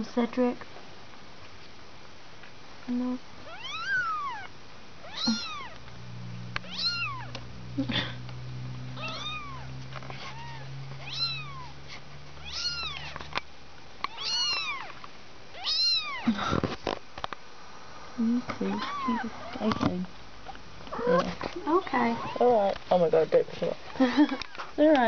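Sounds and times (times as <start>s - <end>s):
kittens mewing: 3.4s - 5.8s, 6.6s - 8.2s, 8.9s - 13.2s, 14.1s - 15.0s, 15.6s - 16.6s, 18.5s - 19.8s, 20.9s - 22.6s, 23.9s - 24.7s
rustling: 8.9s - 15.1s.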